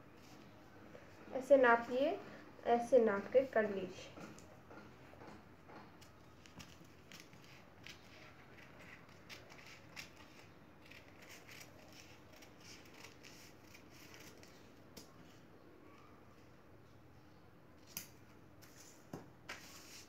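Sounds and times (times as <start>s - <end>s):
scissors snipping newspaper: 6.0s - 15.1s.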